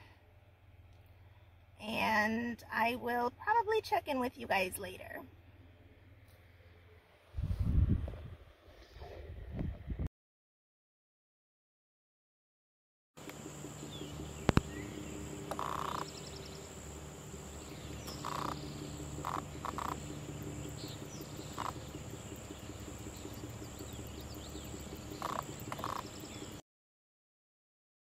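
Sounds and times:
frogs croaking: 13.2s - 26.6s
high insect whine: 13.2s - 26.6s
sharp clicks: 14.4s - 14.7s, 25.2s - 26.1s.

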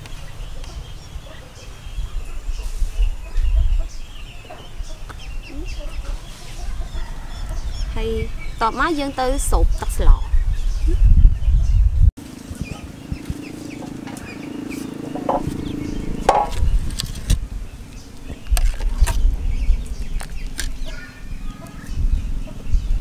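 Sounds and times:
chickens clucking: 0.0s - 11.1s, 12.3s - 17.3s
low rumble: 7.4s - 23.0s.

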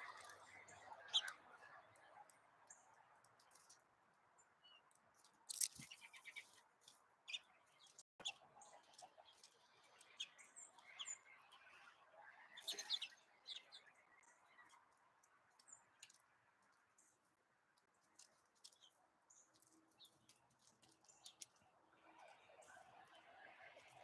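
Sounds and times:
songbirds chirping: 0.0s - 24.0s
light clicks and taps: 14.7s - 21.6s.

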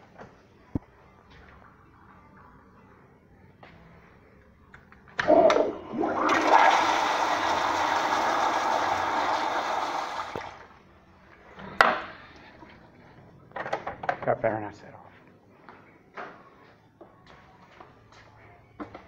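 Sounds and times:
toilet flushing: 5.2s - 10.8s.

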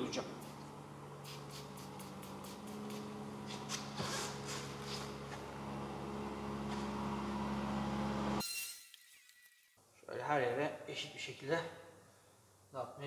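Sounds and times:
cloth wiping across car metal: 1.4s - 5.6s.

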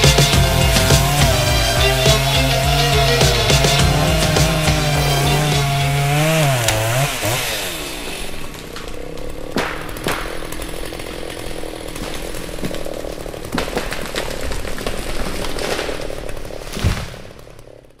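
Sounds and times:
small engine buzzing: 0.0s - 13.9s.

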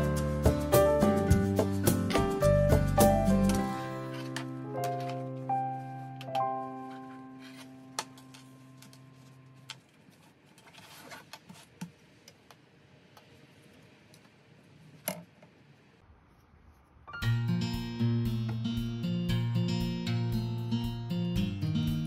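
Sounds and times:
acoustic guitar music: 0.0s - 9.4s, 17.2s - 22.0s.

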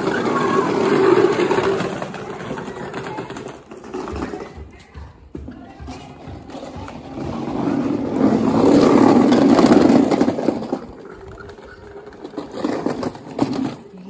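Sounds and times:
plastic toy wheels rolling on bricks: 0.0s - 14.0s.

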